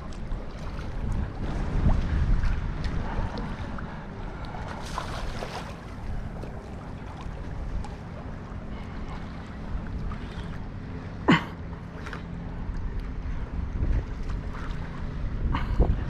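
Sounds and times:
wind rumbling on microphone: 0.0 - 11.1, 12.1 - 16.0.

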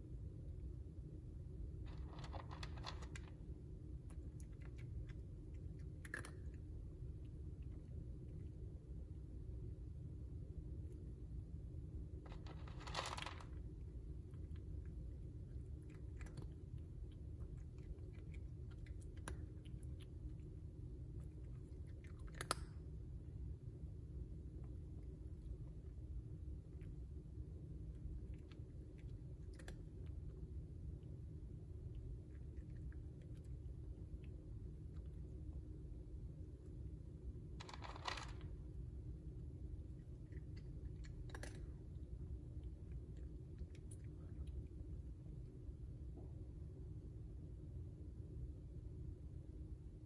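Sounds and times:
cat crunching dry kibble: 1.7 - 8.6, 11.9 - 23.3, 24.6 - 31.2, 31.8 - 35.7, 37.5 - 38.8, 39.8 - 45.1.

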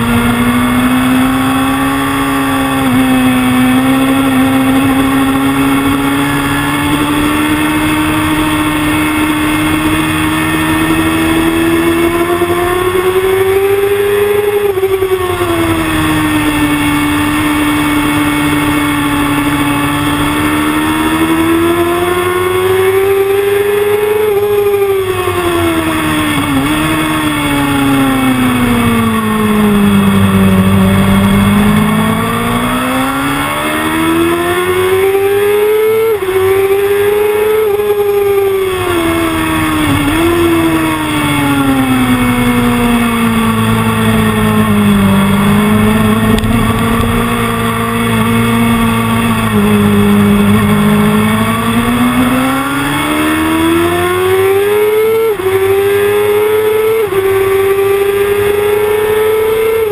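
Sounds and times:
motorcycle engine revving: 0.0 - 59.9
wind and road noise: 0.0 - 59.9.

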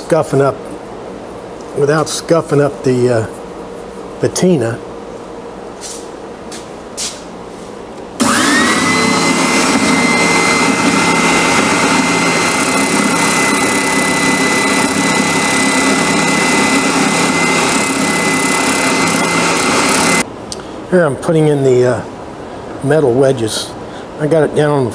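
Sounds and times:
spindle sander motor whine: 8.2 - 20.2
wood being sanded: 8.2 - 20.2.

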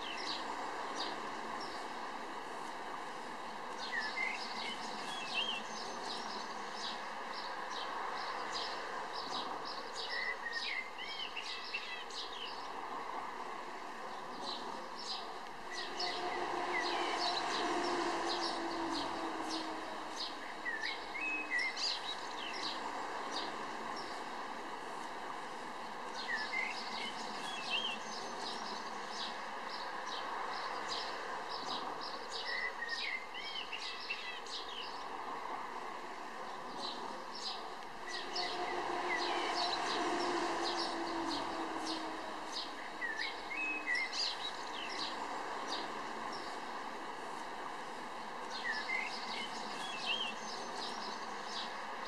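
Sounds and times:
small birds chirping: 36.5 - 52.0.

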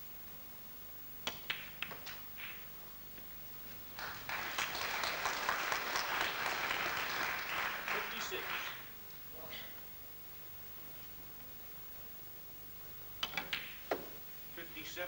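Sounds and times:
snooker balls clacking: 1.2 - 2.7, 13.2 - 14.2
audience applauding: 3.9 - 8.9
cue tip striking ball click: 13.2 - 14.2.

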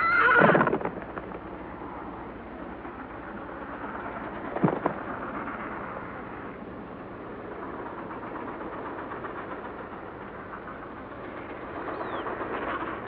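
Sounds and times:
steady rushing noise: 0.6 - 13.0.

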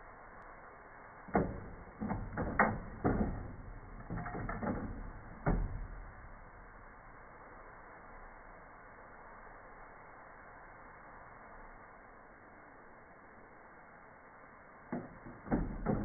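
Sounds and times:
faint tape hiss: 0.0 - 16.0.

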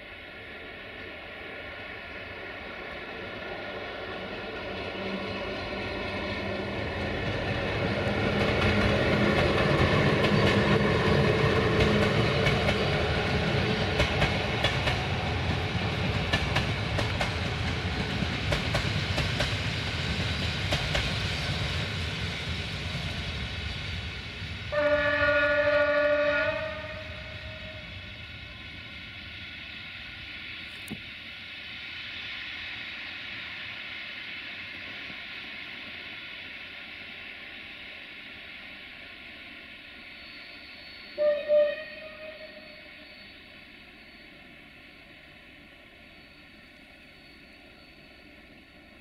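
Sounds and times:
train wheels rumbling: 0.3 - 49.0
train horn blast: 24.7 - 27.9, 41.2 - 42.8.

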